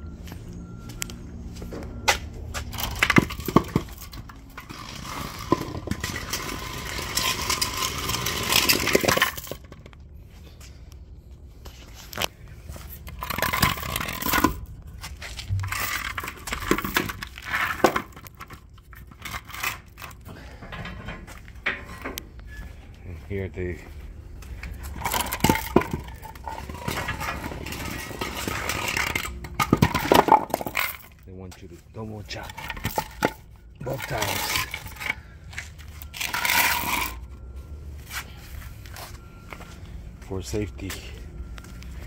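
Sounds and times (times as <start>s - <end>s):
wood scraping over concrete: 2.6s - 9.7s, 13.1s - 20.6s, 24.8s - 31.1s, 31.9s - 37.3s.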